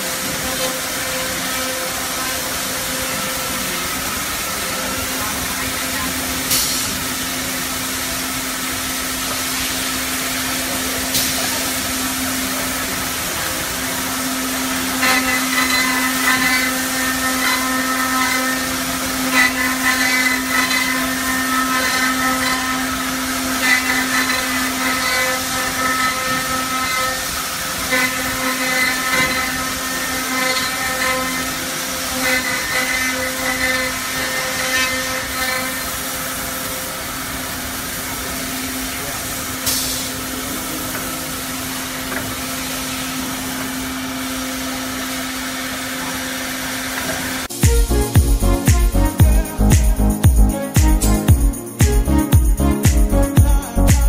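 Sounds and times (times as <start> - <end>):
milling machine motors humming: 0.0 - 54.0.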